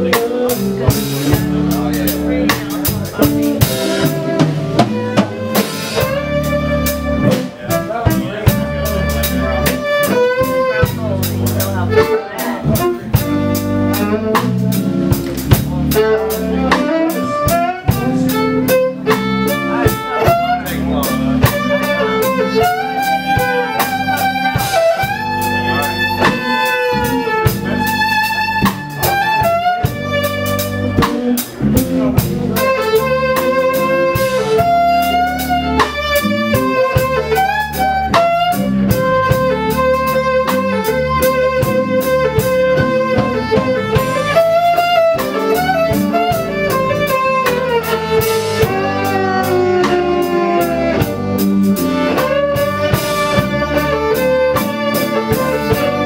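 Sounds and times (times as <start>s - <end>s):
drum kit beat: 0.0s - 56.0s
electric bass: 0.0s - 56.0s
electric guitar: 0.0s - 56.0s
fiddle melody: 0.0s - 56.0s.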